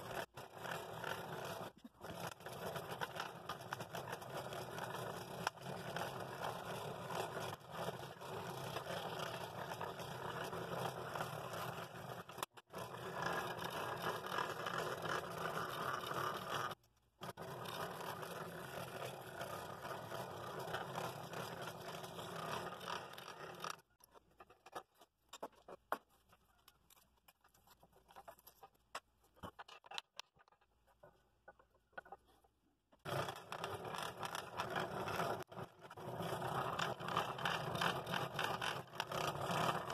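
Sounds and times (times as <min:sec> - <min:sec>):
scroll saw cutting wood: 0:00.0 - 0:23.9.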